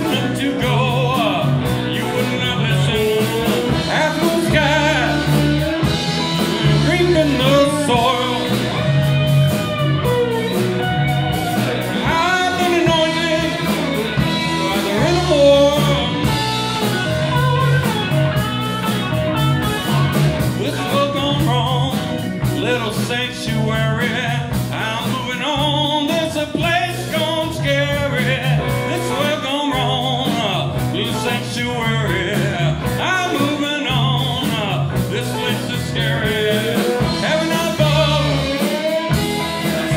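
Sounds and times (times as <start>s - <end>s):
electric slide guitar: 0.0s - 24.8s, 27.0s - 39.9s
bass guitar: 0.0s - 39.9s
drums: 0.0s - 39.9s
keyboards: 0.0s - 39.9s.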